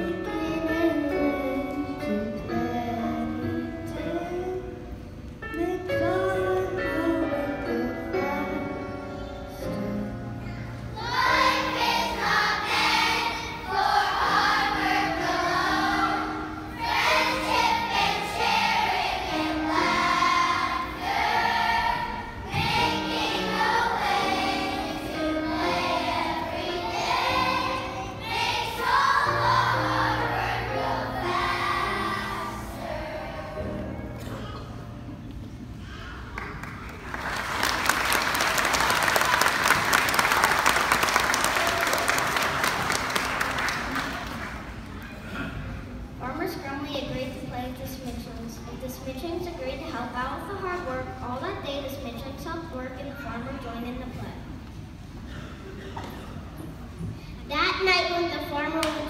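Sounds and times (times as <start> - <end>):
children singing: 11.0 - 34.0.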